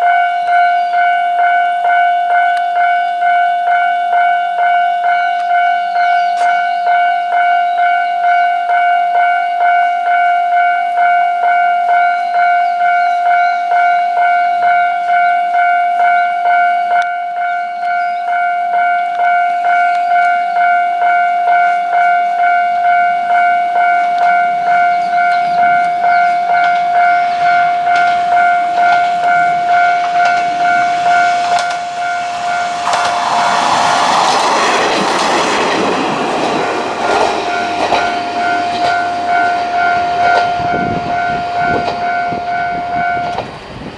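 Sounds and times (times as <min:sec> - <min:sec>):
level crossing bell ringing: 0:00.0 - 0:33.7, 0:36.1 - 0:43.4
diesel railcar engine and wheels: 0:00.0 - 0:43.9
wheels knocking over rail joints: 0:25.4 - 0:42.1.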